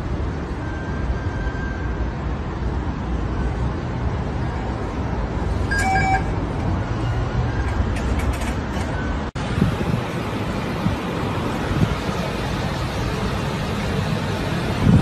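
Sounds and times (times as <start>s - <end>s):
short electronic beep: 5.7s - 6.4s.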